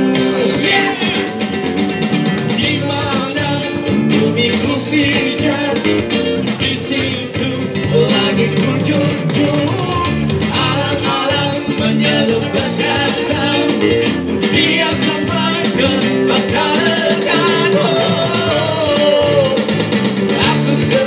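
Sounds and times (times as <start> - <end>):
guitar-led band: 0.0 - 21.0
people singing into microphones: 0.0 - 21.0.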